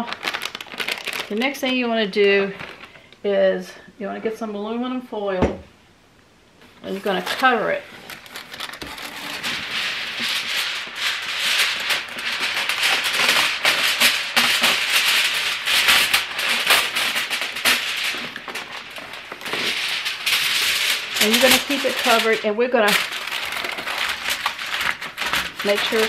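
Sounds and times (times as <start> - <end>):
foil tearing: 0.0 - 3.0, 6.7 - 26.0
aluminum foil crinkling: 0.0 - 3.2, 6.6 - 26.0.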